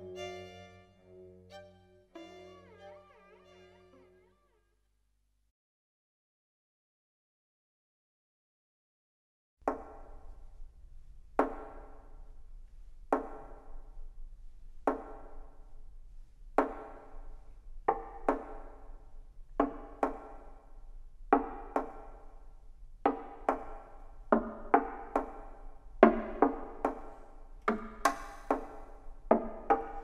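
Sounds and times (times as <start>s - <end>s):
sharp percussive string notes: 0.0s - 4.3s.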